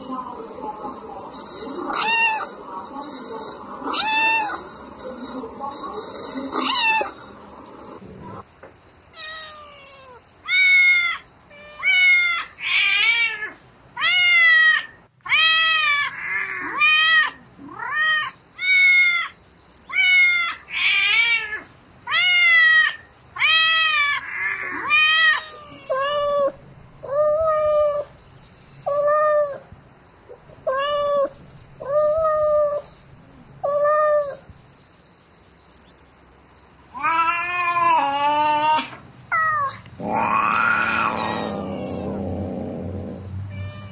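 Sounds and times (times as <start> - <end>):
cat meowing: 1.8 - 2.5, 3.8 - 4.6, 6.5 - 7.2, 9.2 - 28.1, 30.5 - 32.9, 36.9 - 43.9
cat yowling: 1.8 - 2.5, 3.8 - 4.6, 6.5 - 7.2, 9.2 - 28.1, 30.6 - 32.9, 37.0 - 43.9.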